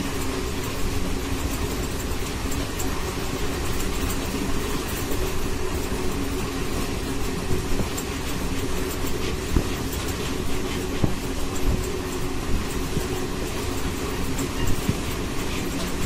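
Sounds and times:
passenger train rumbling: 0:00.0 - 0:16.0.

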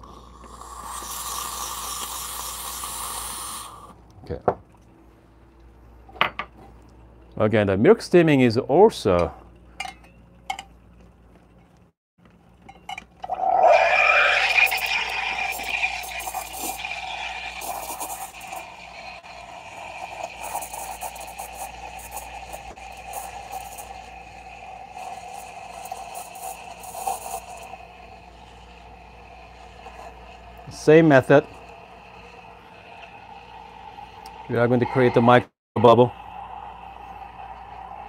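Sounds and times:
steam wand hissing into milk: 0:00.0 - 0:04.0, 0:13.3 - 0:38.0.

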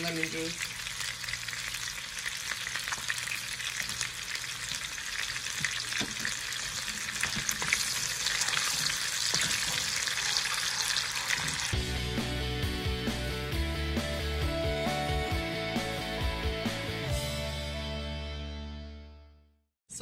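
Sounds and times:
glaze sizzling in a frying pan: 0:00.0 - 0:11.8
wooden spoon stirring a pan: 0:05.6 - 0:11.8.

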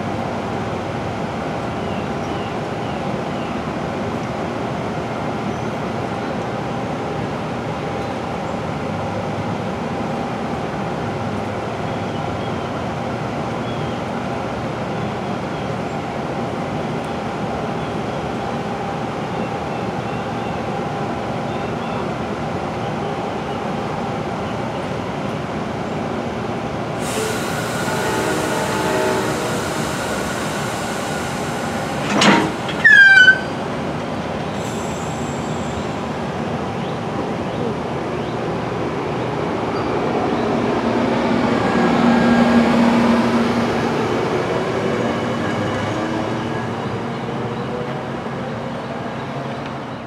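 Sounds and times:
train rumble: 0:00.0 - 0:50.0
hiss: 0:27.0 - 0:33.5, 0:34.5 - 0:36.1
loud short squeal falling in pitch: 0:27.0 - 0:33.7.

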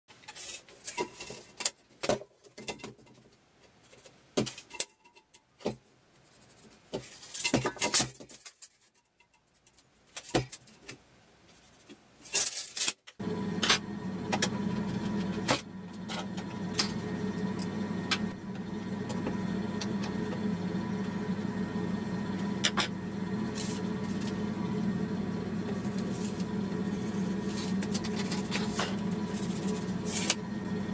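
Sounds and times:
steady low hum: 0:13.2 - 0:30.9.

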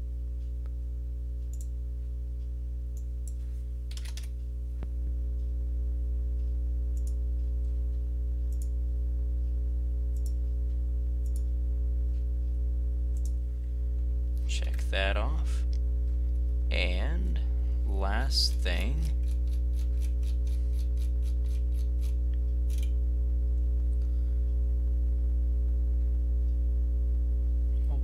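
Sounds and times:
low electrical hum: 0:00.0 - 0:28.0
computer mouse clicks: 0:03.0 - 0:04.3, 0:07.0 - 0:07.2, 0:08.5 - 0:08.7, 0:10.2 - 0:10.4, 0:11.2 - 0:11.5, 0:13.2 - 0:13.4, 0:19.2 - 0:22.9
keystrokes: 0:03.9 - 0:04.3.

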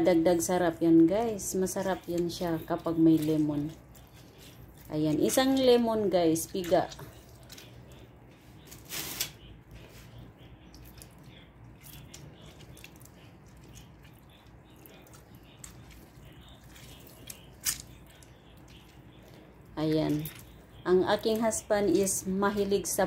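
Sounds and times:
lemon squishing and dripping: 0:10.7 - 0:19.4.

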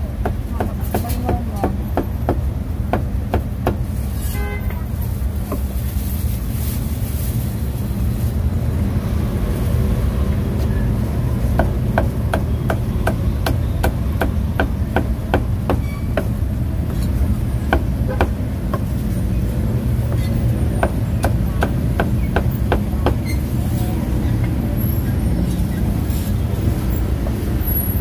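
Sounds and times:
low rumble of street traffic: 0:00.0 - 0:28.0
cleaver chopping on wooden block: 0:11.6 - 0:16.4.

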